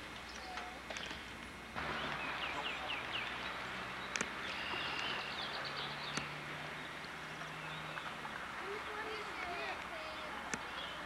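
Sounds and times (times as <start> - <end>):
small birds chirping: 0.2 - 11.0
sharp clicks: 4.1 - 4.4, 6.1 - 6.3.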